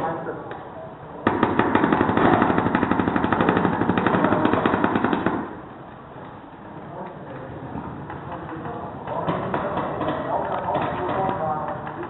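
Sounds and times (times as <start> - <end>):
paintball marker firing rapidly: 1.2 - 5.7, 8.3 - 12.0.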